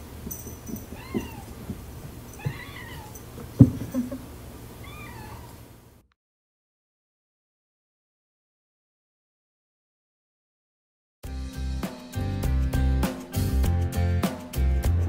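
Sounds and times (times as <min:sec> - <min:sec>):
kitten meowing: 0:00.9 - 0:01.5, 0:02.4 - 0:03.2, 0:04.8 - 0:05.6
light knocks: 0:03.4 - 0:03.9.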